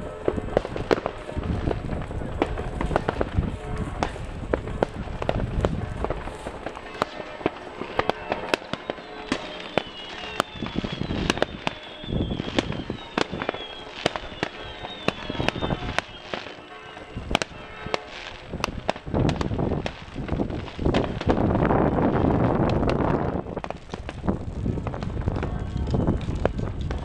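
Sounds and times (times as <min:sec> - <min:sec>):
firework whistle falling in pitch: 0:00.0 - 0:21.4
fireworks banging: 0:00.0 - 0:27.0.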